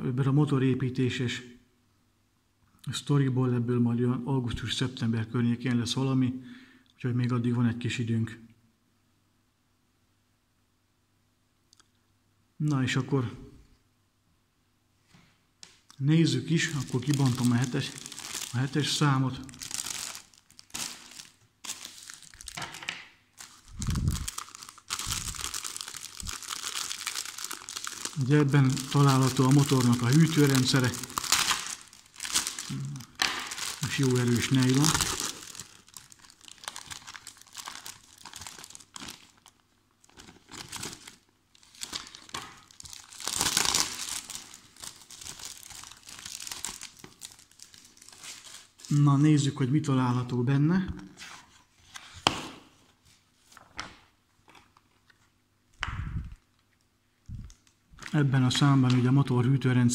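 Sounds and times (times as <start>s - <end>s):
plastic wrapping crinkling: 16.5s - 49.1s, 56.4s - 59.1s.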